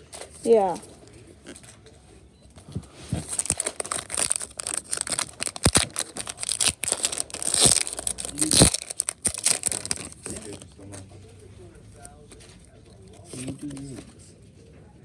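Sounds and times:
foil wrapper crinkling and tearing: 3.2 - 10.8.

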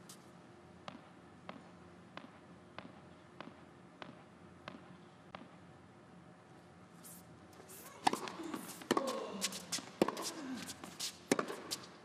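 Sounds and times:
racket hitting tennis ball: 0.8 - 5.5, 7.8 - 12.0.

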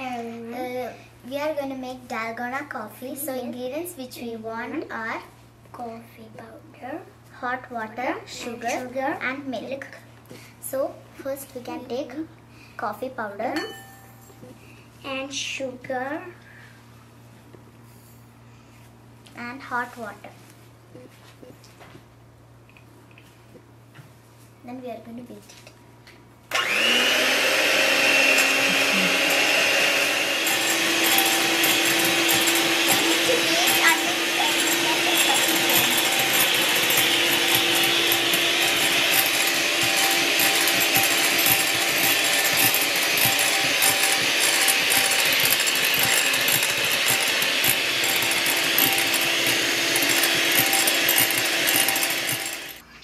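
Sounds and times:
electric hand mixer whining: 26.5 - 52.8.

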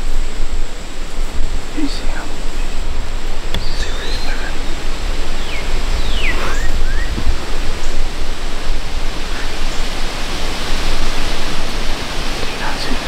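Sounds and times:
low rumble: 0.0 - 13.0
wind noise on microphone: 0.0 - 13.0
bird chirps: 3.5 - 8.2.

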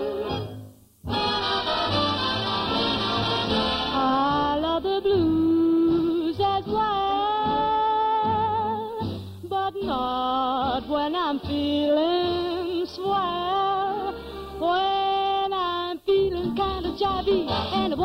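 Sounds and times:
orchestra playing swing music: 0.0 - 4.7, 17.1 - 18.0.

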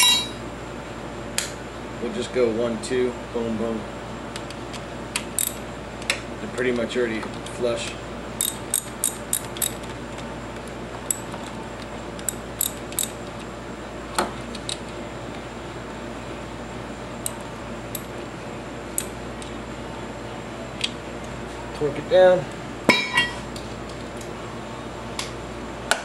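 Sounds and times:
steady low hum: 0.0 - 26.0
socket ratchet clicking: 5.2 - 5.6, 8.4 - 9.9, 12.2 - 13.2.

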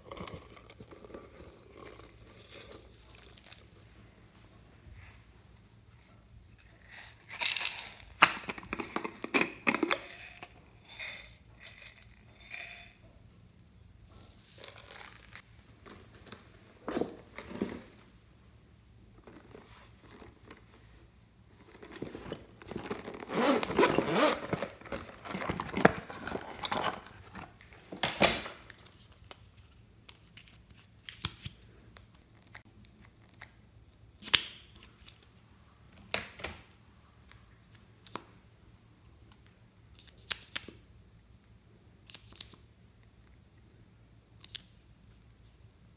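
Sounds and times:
plastic cases rustling and scraping: 0.0 - 4.1, 5.0 - 11.0, 14.2 - 18.2, 19.2 - 29.1.

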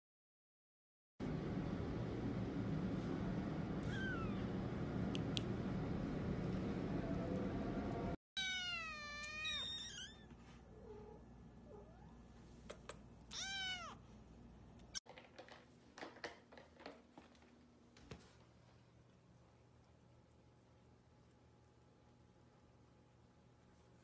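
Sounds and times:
kitten meowing: 3.8 - 4.5, 8.4 - 10.3, 13.3 - 14.0.

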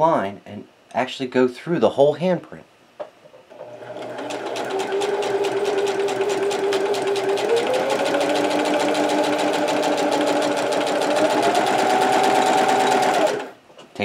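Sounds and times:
sewing machine stitch clatter: 3.5 - 13.6
sewing machine motor whine: 3.6 - 13.6.

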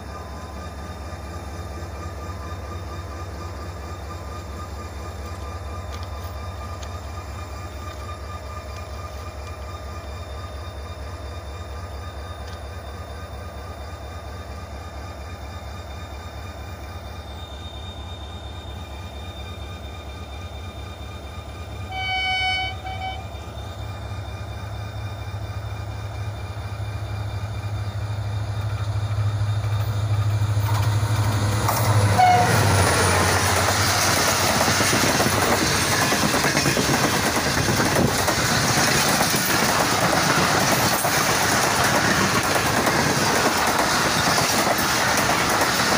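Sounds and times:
locomotive horn: 21.9 - 23.4, 32.0 - 32.8
train wheels clattering: 28.5 - 45.9.

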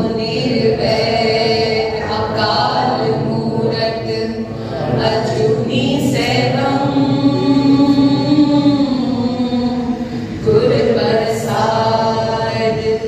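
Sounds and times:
group singing in unison: 0.0 - 13.0.

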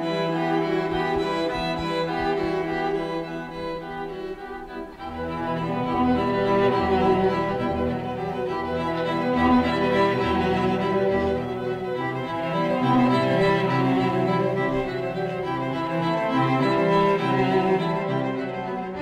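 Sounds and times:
bowed string chords: 0.0 - 19.0.

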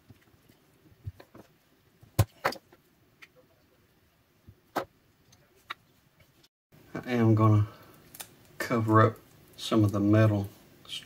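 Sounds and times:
metallic clicks and snaps: 8.1 - 8.6.

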